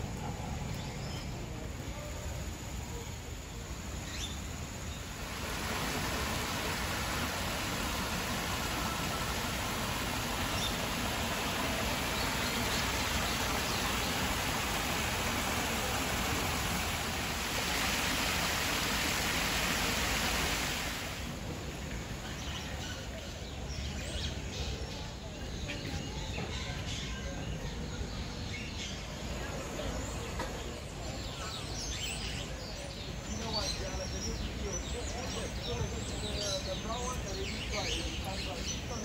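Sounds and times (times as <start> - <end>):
stream water rushing over rocks: 4.5 - 22.2.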